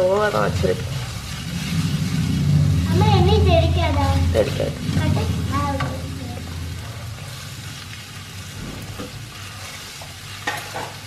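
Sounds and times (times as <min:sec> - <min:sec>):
onions sizzling in oil: 0:00.0 - 0:11.0.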